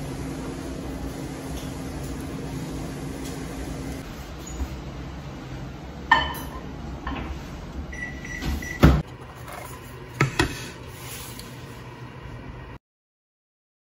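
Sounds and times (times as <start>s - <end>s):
microwave beep: 7.9s - 9.1s.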